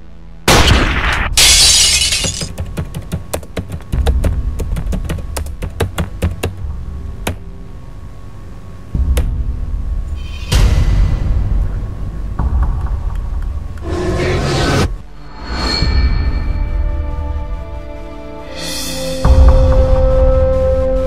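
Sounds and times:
glass shattering crash: 0:01.4 - 0:02.5
steady low drone: 0:03.9 - 0:21.0.

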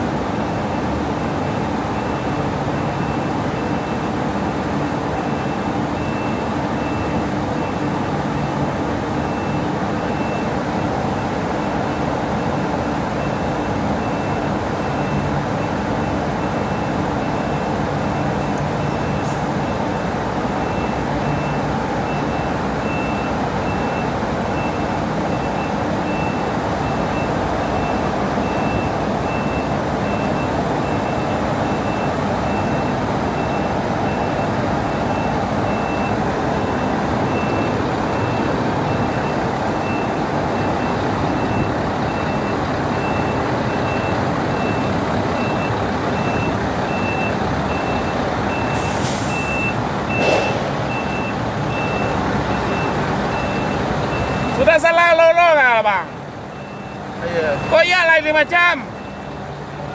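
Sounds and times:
diesel truck engine running: 0:00.0 - 0:59.9
reversing alarm beeping: 0:00.6 - 0:04.2, 0:05.2 - 0:08.6, 0:09.2 - 0:59.4
short hisses: 0:48.8 - 0:49.5.

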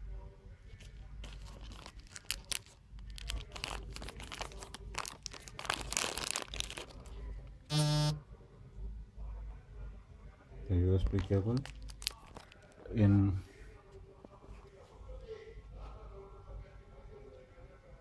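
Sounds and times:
packaging crinkling and rustling: 0:00.8 - 0:07.2, 0:11.0 - 0:12.8
short low buzzing tone: 0:07.7 - 0:08.2.

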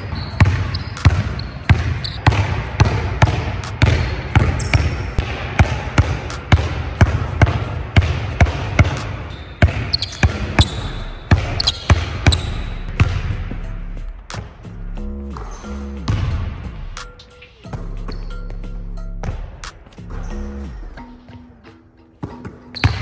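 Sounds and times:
basketball bouncing on hardwood: 0:00.4 - 0:09.0.

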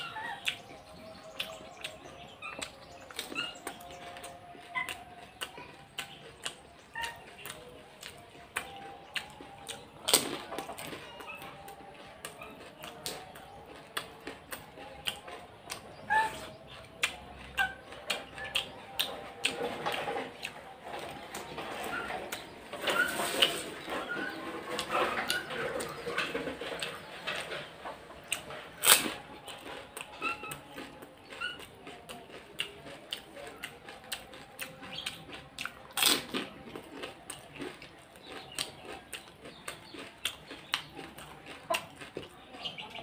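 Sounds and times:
birds chirping: 0:00.0 - 0:35.8, 0:36.8 - 0:43.0.

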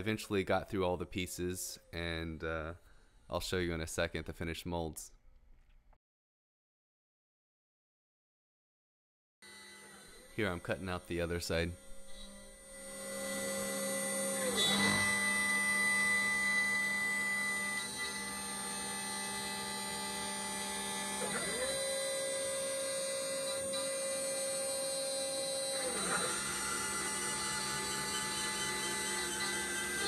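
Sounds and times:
cnc spindle whining: 0:09.5 - 0:30.0
low machine tones gliding: 0:09.5 - 0:30.0.

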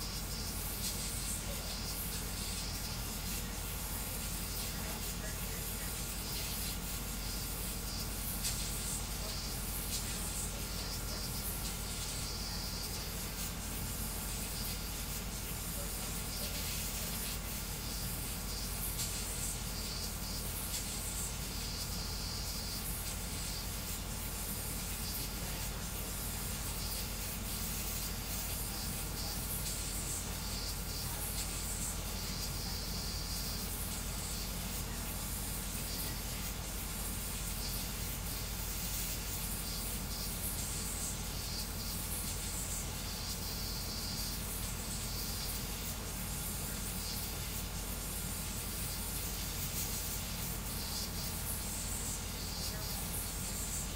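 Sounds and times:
cooling fans hissing: 0:00.0 - 0:53.9.

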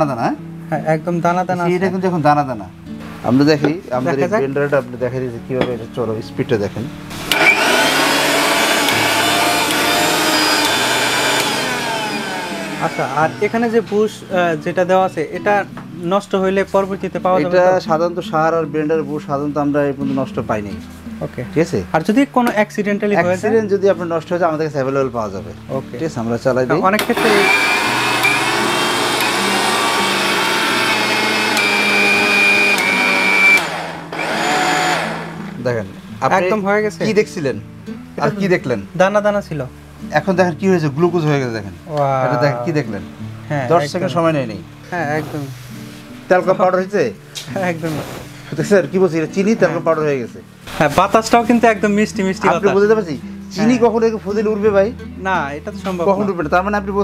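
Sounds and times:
mixer grinder motor whining: 0:07.2 - 0:13.8, 0:27.0 - 0:35.6.

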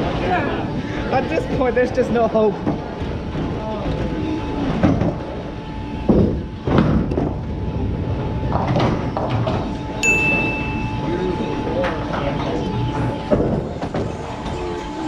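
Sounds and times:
bowling pins clattering: 0:02.0 - 0:15.0
bowling alley knocks and rumble: 0:02.2 - 0:09.9, 0:12.0 - 0:14.6
bowling ball rolling on wooden lane: 0:02.2 - 0:11.0
steady high beep: 0:10.0 - 0:11.6.

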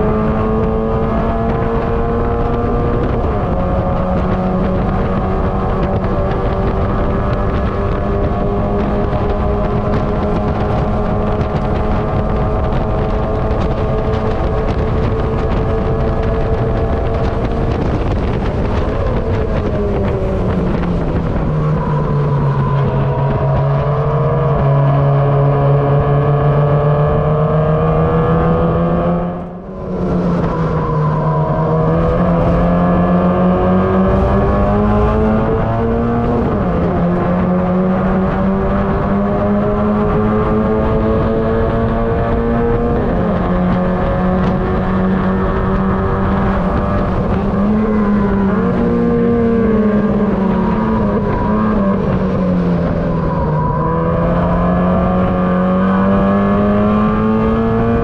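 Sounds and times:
race car engine running hard: 0:00.0 - 0:58.0.

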